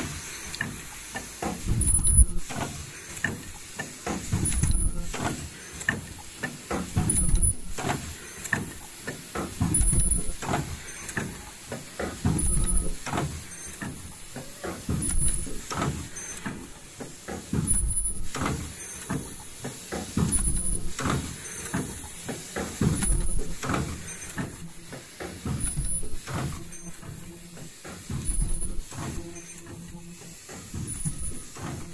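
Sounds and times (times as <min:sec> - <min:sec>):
short high-pitched whine: 0:00.0 - 0:12.8, 0:13.4 - 0:14.6, 0:16.0 - 0:17.2, 0:17.8 - 0:19.8, 0:21.2 - 0:22.5, 0:23.2 - 0:25.1, 0:25.9 - 0:28.6, 0:29.2 - 0:30.4, 0:31.0 - 0:31.9
air hisses: 0:00.0 - 0:31.9
machine mechanical strokes: 0:00.0 - 0:31.9.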